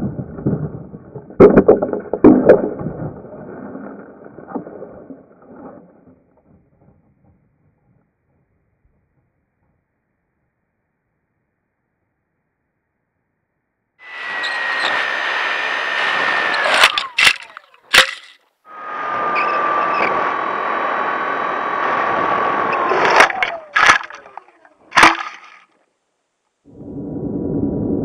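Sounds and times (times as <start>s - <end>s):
electric motor and propeller whining: 14.0s - 24.9s
wind rush on microphone: 26.7s - 28.0s.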